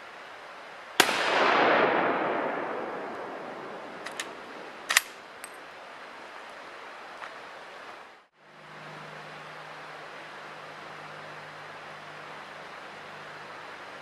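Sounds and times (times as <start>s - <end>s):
rifle shot echoing: 1.0s - 5.3s
rifle bolt clacks: 4.0s - 5.6s.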